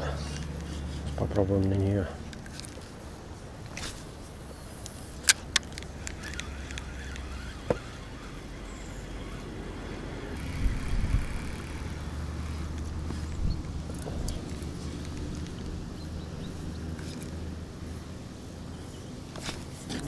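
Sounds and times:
fishing tackle clicks: 4.7 - 9.5.

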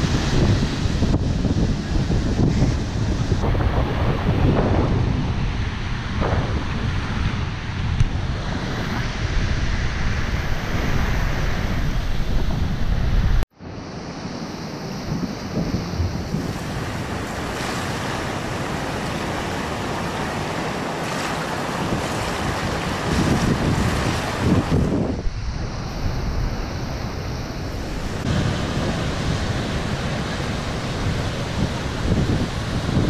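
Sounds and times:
wind buffeting microphone: 0.0 - 13.4, 14.7 - 33.0
waves breaking on beach: 0.0 - 33.0.

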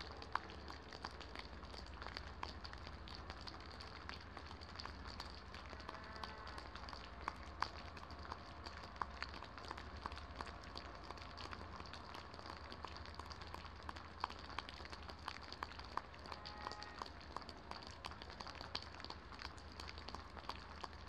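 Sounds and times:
rain falling: 0.0 - 21.0.

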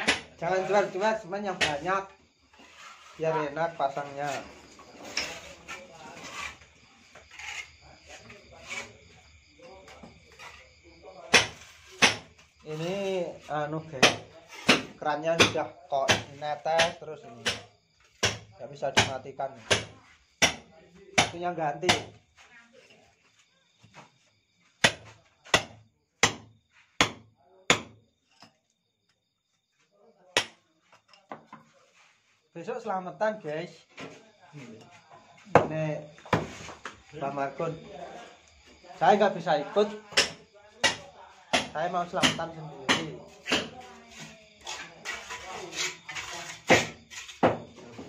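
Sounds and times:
hammer striking brickwork: 0.0 - 0.4, 1.6 - 1.9, 11.3 - 12.4, 14.0 - 22.2, 24.8 - 28.0, 30.4 - 30.6, 35.5 - 36.9, 40.1 - 43.8, 46.7 - 47.7
scraping and knocking on brick wall: 0.0 - 28.6, 30.4 - 32.2, 33.9 - 37.1, 38.1 - 48.0.

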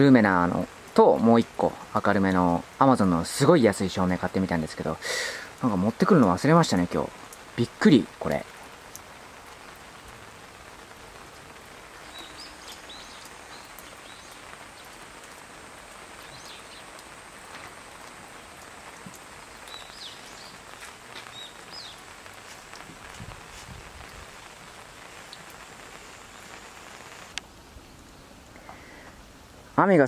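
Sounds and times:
light rain falling: 0.0 - 30.0
bird chirping: 12.0 - 15.0, 16.2 - 17.0, 19.4 - 22.1.

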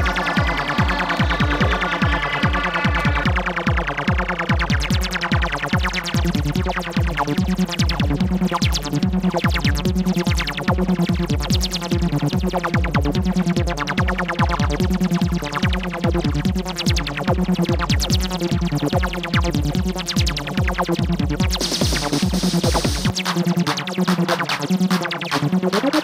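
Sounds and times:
looping synthesizer line: 0.0 - 5.4
kick drum beat: 0.0 - 23.2
fast hi-hat ticking: 18.0 - 26.0.

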